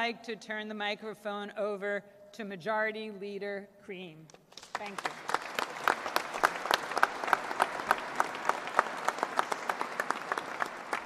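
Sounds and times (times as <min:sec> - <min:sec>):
loud sharp close claps: 0:04.3 - 0:11.0
group applauding: 0:04.5 - 0:11.0.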